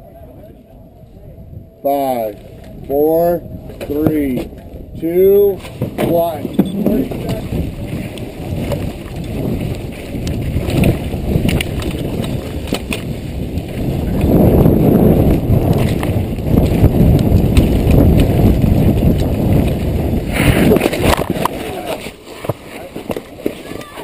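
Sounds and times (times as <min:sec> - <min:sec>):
wind buffeting microphone: 0:00.0 - 0:24.0
mountain bike rattling on dirt trail: 0:07.0 - 0:24.0.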